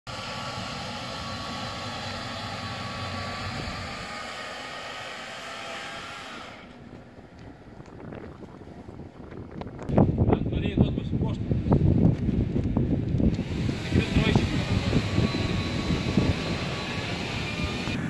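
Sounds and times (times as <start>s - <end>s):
machine humming with a whine: 0.1s - 8.0s, 13.1s - 18.0s.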